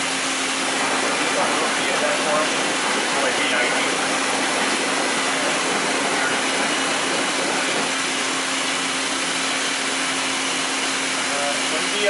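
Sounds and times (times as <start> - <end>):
constant low hum: 0.0 - 12.0
coolant spraying hiss: 0.0 - 12.0.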